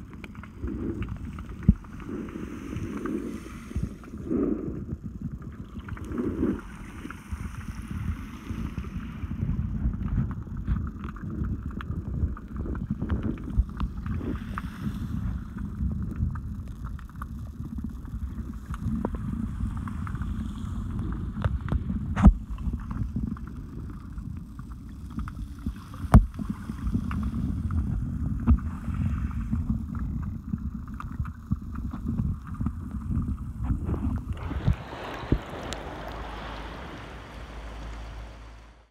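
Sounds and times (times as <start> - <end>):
choppy sea hiss: 0.0 - 4.9, 34.2 - 38.9
muffled underwater surf rumble: 33.6 - 38.9.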